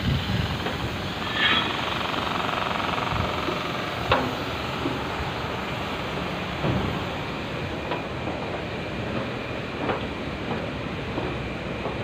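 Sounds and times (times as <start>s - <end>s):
factory machinery drone: 0.0s - 12.0s
footsteps on steel stairs: 3.4s - 12.0s.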